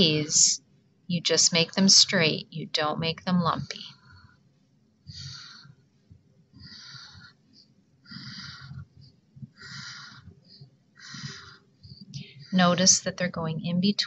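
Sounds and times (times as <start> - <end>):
marker drawing on paper: 6.5 - 13.2.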